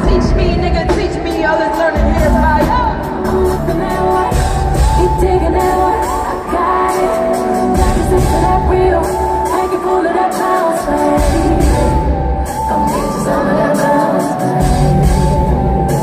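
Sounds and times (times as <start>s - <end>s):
person singing: 0.0s - 16.0s
heavy bass beat: 14.4s - 16.0s.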